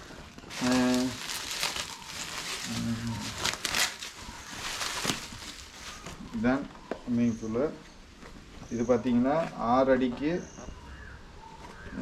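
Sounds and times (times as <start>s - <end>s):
plastic packaging crinkling: 0.4s - 6.3s.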